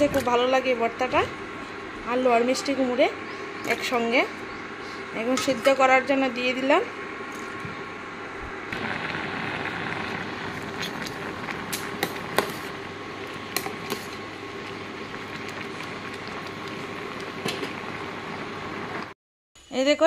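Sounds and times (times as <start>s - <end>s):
faint hum: 0.0s - 20.0s
water boiling in a pot: 8.7s - 19.2s.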